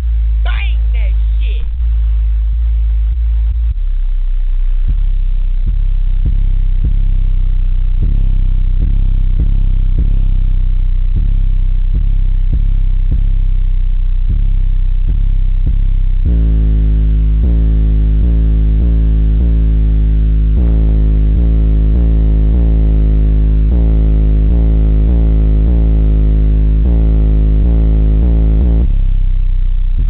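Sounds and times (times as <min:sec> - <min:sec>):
deep bass rap music: 0:00.0 - 0:30.0.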